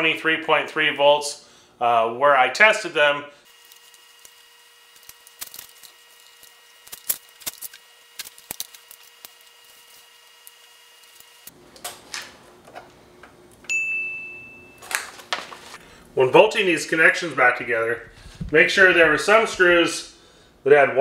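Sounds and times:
bright ding sound effect: 13.7s - 14.8s.

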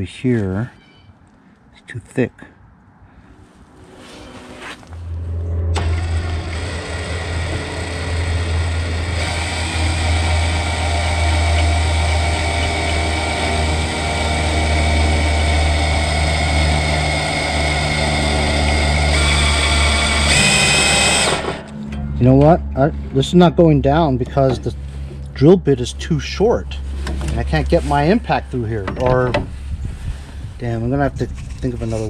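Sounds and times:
cordless drill running: 5.8s - 21.7s.

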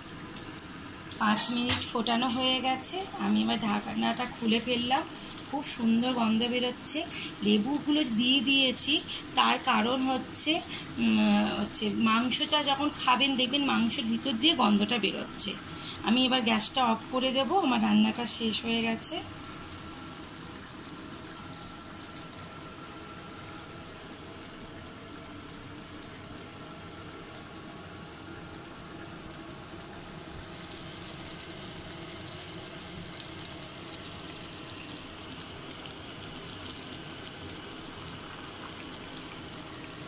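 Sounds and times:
curry bubbling and sizzling in a pan: 0.0s - 40.0s.

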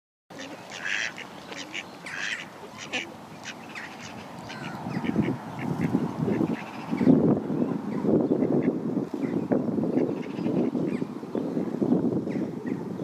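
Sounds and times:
birds calling: 0.3s - 13.0s
wind buffeting microphone: 0.5s - 13.0s.

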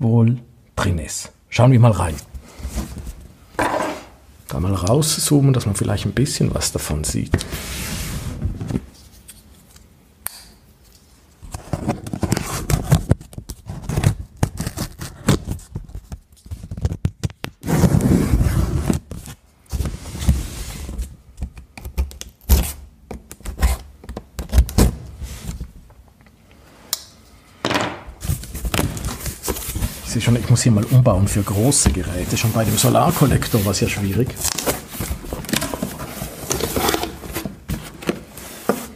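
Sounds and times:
cardboard scraping and tearing: 11.6s - 15.7s, 17.6s - 21.0s, 28.2s - 38.9s.

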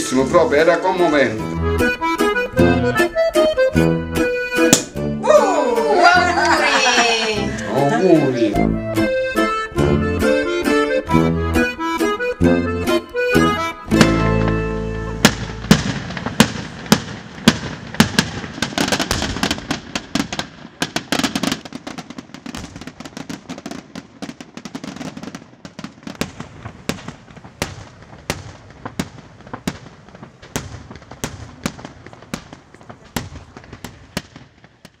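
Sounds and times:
fireworks bangs: 4.6s - 8.2s, 13.2s - 35.0s.

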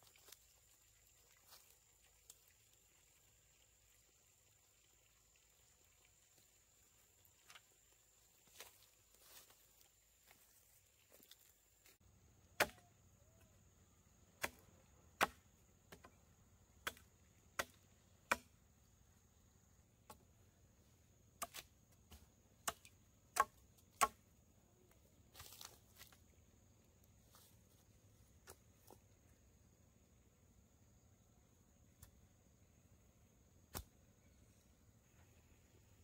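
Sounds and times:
blade chopping wooden post: 12.6s - 12.8s, 14.4s - 14.6s, 15.2s - 16.0s, 21.4s - 24.2s.

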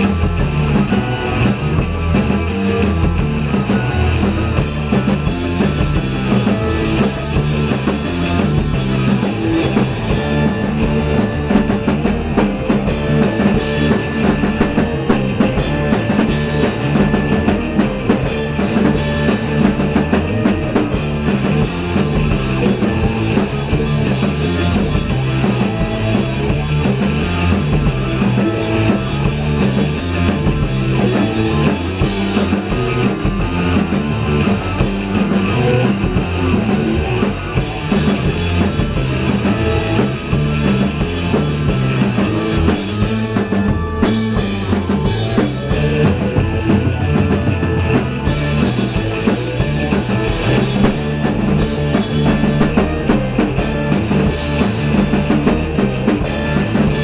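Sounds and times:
drum kit beat: 0.0s - 57.0s
electric guitars: 0.0s - 57.0s.

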